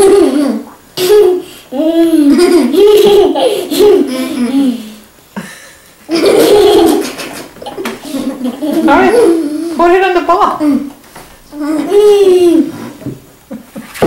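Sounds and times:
children laughing with full mouths: 0:00.0 - 0:09.8.

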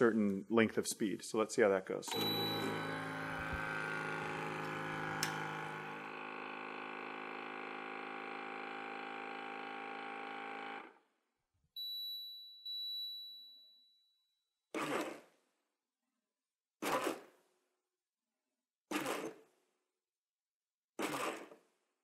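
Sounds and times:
vacuum pump humming: 0:02.1 - 0:10.9.

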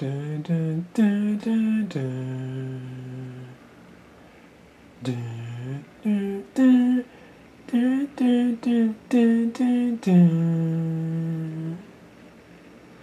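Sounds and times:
person humming a tune: 0:00.0 - 0:03.6, 0:05.0 - 0:07.1, 0:07.7 - 0:11.9.

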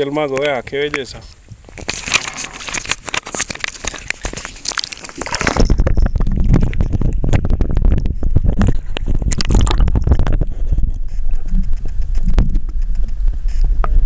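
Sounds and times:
fish splashing at water surface: 0:01.8 - 0:05.7
muffled underwater rumble: 0:05.2 - 0:14.0.

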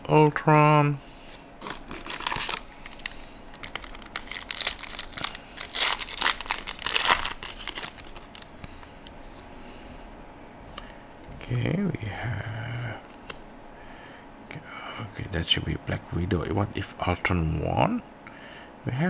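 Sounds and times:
cards being shuffled: 0:01.6 - 0:08.5, 0:13.0 - 0:13.5.

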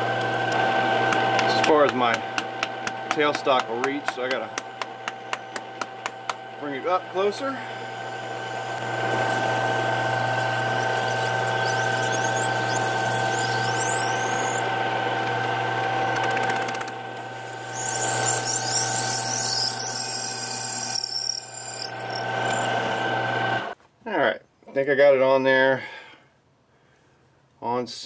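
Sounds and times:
lathe motor hum and gear whine: 0:00.0 - 0:23.8
drill squealing: 0:06.6 - 0:15.4, 0:17.2 - 0:23.3.

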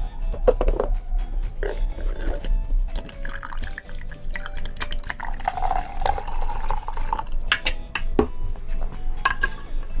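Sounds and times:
milk pouring into plastic cup: 0:03.0 - 0:07.4
spoon clicking and knocking: 0:07.5 - 0:08.1, 0:09.2 - 0:09.6.

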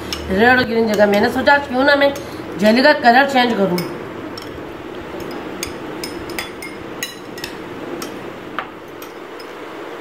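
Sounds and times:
faint steady hum: 0:00.0 - 0:10.0
metal spoon clinking on glass: 0:05.2 - 0:08.2, 0:09.0 - 0:09.6.

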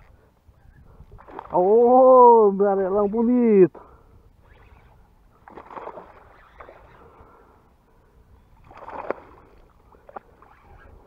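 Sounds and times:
fish thrashing and splashing: 0:01.2 - 0:01.6, 0:05.4 - 0:07.0, 0:08.6 - 0:11.0.

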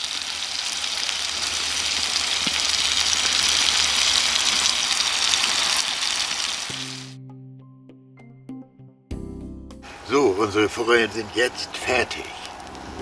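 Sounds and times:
crackles of hot fat: 0:00.0 - 0:07.1, 0:11.2 - 0:13.0
fish sizzling in a pan: 0:00.0 - 0:07.2.

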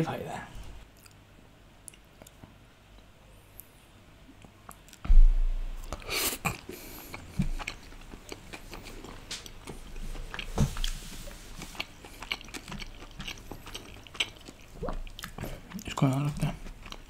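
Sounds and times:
person chewing food: 0:00.9 - 0:01.2, 0:01.8 - 0:03.1, 0:04.4 - 0:05.1, 0:05.8 - 0:17.0.

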